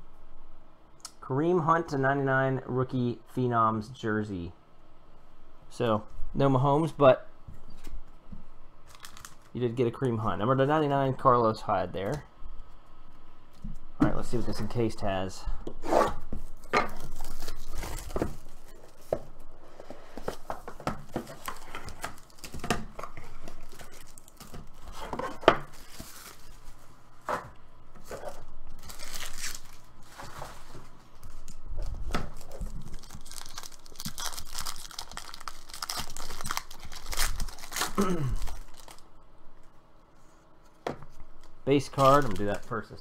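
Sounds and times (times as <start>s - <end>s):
wrapping crinkling and rustling: 8.8s - 10.2s, 16.4s - 27.0s, 28.0s - 39.7s, 41.1s - 43.0s
foil pack tearing: 8.9s - 9.5s, 21.3s - 22.7s, 28.8s - 29.9s, 32.3s - 39.0s, 41.8s - 42.8s
plastic wrap tearing: 8.9s - 9.6s, 16.6s - 18.8s, 21.1s - 26.8s, 28.1s - 30.2s, 31.2s - 39.0s, 41.8s - 42.8s.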